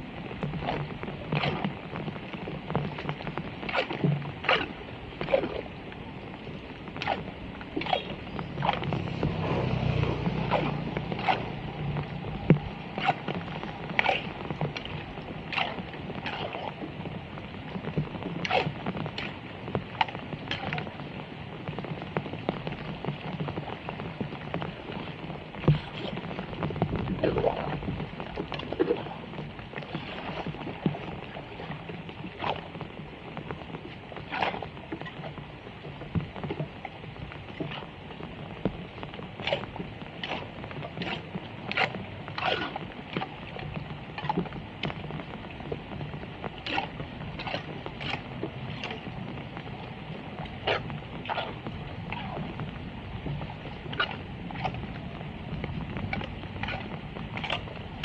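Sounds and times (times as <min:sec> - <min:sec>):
heavy rain on flooded road: 0:00.0 - 0:58.0
water splashing and sloshing: 0:00.0 - 0:58.0
splashes and wet slaps: 0:00.5 - 0:01.8, 0:03.0 - 0:05.7, 0:07.0 - 0:16.8, 0:18.4 - 0:19.4, 0:20.0 - 0:20.9, 0:32.3 - 0:32.7, 0:34.2 - 0:35.3, 0:39.4 - 0:43.6, 0:46.6 - 0:49.1, 0:53.9 - 0:54.9, 0:56.1 - 0:57.7.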